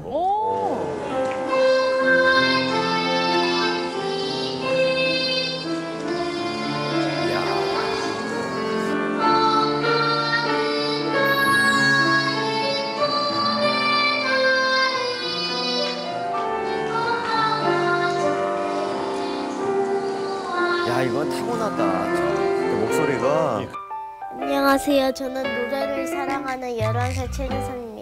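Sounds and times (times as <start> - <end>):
boy singing: 1.5 - 11.2, 12.2 - 18.2, 25.5 - 28.0.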